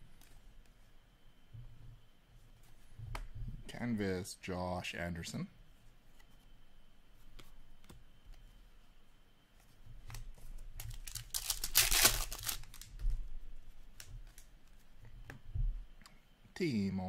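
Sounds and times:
papery crinkling and tearing: 0:10.8 - 0:13.1.

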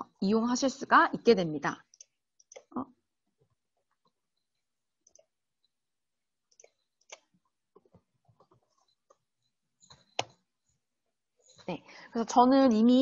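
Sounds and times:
keyboard and mouse clicks: 0:01.9 - 0:02.8, 0:06.5 - 0:09.2, 0:09.8 - 0:10.4.

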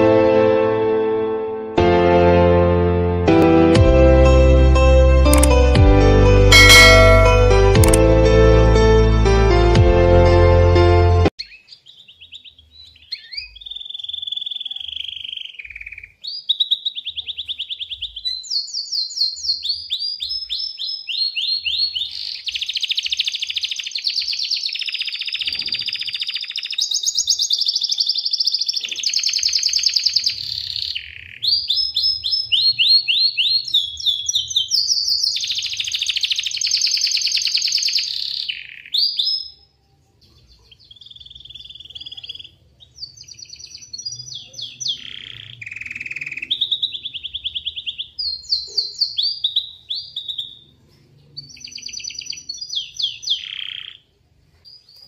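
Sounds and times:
canary singing: 0:05.2 - 0:05.8, 0:06.4 - 0:08.0, 0:11.3 - 0:55.0.

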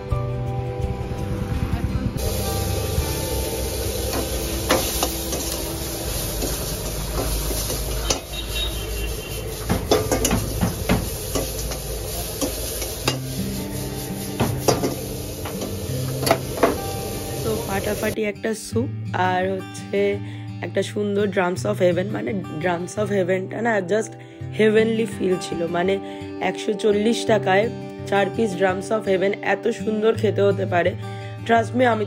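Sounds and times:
food sizzling: 0:02.1 - 0:18.2
metal ladle clanking on wok: 0:09.6 - 0:13.3, 0:14.4 - 0:16.8.

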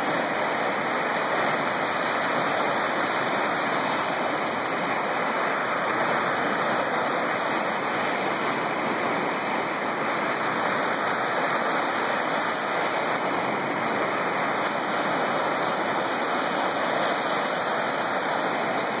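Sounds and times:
waves washing up pebble beach: 0:00.0 - 0:19.0.

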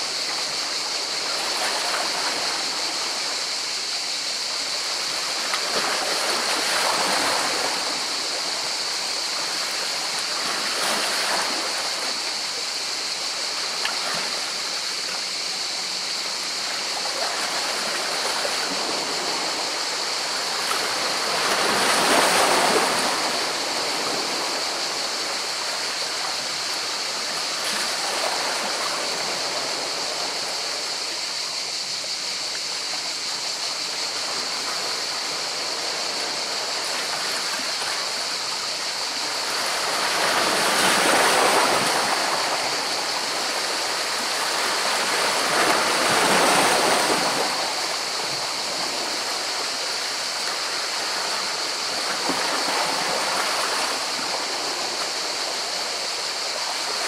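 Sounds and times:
steady high hiss: 0:00.0 - 0:57.0
sea waves washing over rocks: 0:34.0 - 0:57.0.

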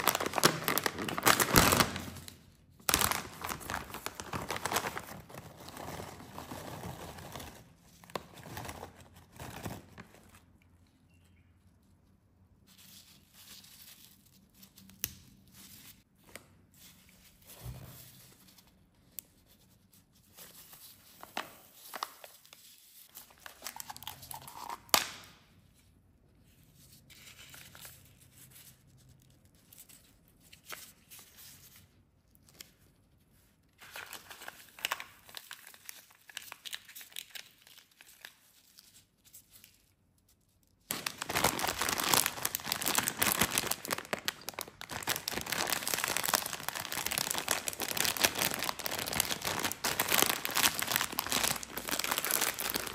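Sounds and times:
plastic wrapper crinkling: 0:00.0 - 0:10.6, 0:21.2 - 0:25.2, 0:33.8 - 0:52.9.

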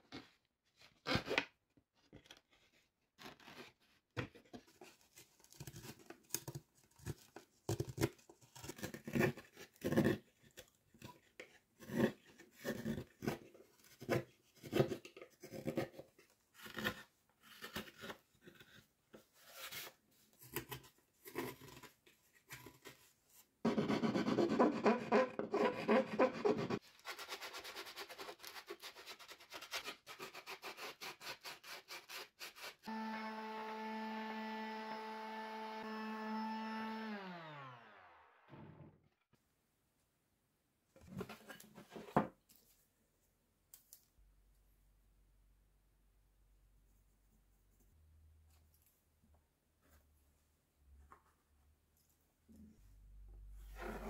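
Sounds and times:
hand tool rasping on wood: 0:23.7 - 0:26.8.

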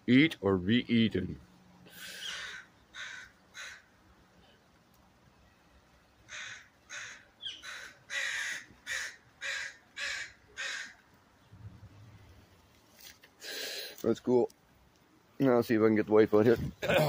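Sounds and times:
crows cawing: 0:02.0 - 0:04.0, 0:06.3 - 0:11.0.

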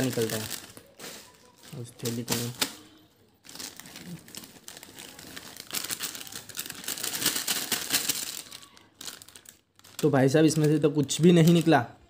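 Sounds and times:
snacks crackling into plastic bag: 0:00.0 - 0:11.9
plastic snack packet crinkling: 0:00.0 - 0:12.0.

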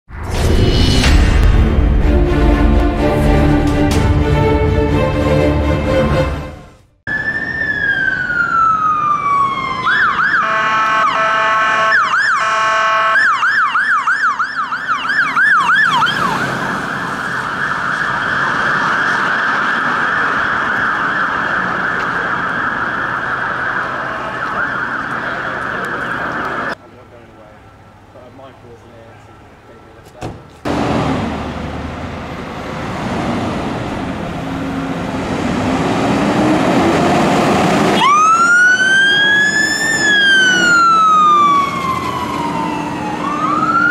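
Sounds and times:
fire engine siren: 0:07.0 - 0:26.8, 0:30.7 - 0:43.9
horn blasts: 0:10.4 - 0:13.3.

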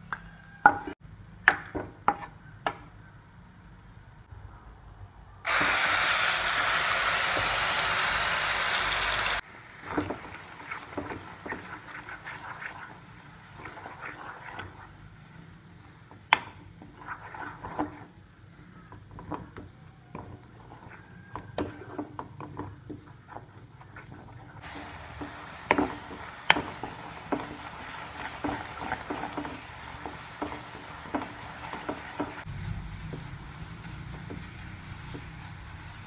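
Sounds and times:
food sizzling in a wok: 0:05.5 - 0:15.3, 0:24.6 - 0:36.0
wooden spatula scraping a pan: 0:09.8 - 0:36.0.

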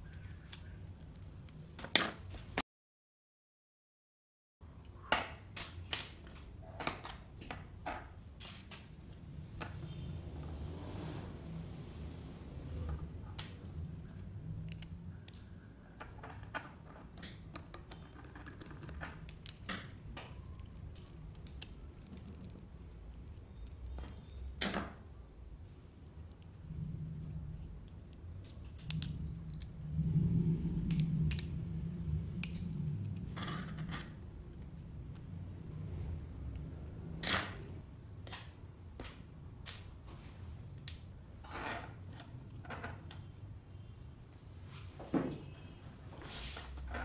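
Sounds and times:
small clicks and scrapes: 0:00.0 - 0:02.6, 0:12.8 - 0:24.6, 0:26.0 - 0:29.9, 0:30.6 - 0:35.9
low hum: 0:25.2 - 0:38.2.

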